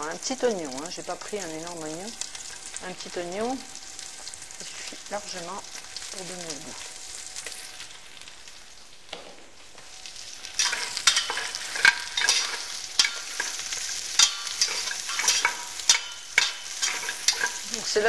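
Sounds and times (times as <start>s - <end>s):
onions sizzling in oil: 0.0s - 18.0s
spoon scraping and clinking on pot: 10.6s - 17.7s.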